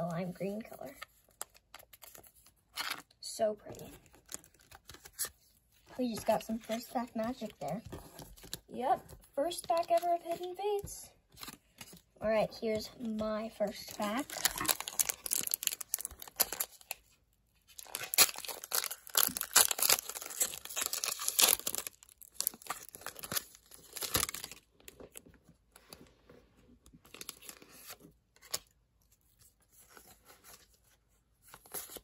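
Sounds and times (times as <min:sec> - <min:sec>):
cards rustling: 0:03.7 - 0:25.2
foil wrapper crinkling and tearing: 0:13.6 - 0:25.3.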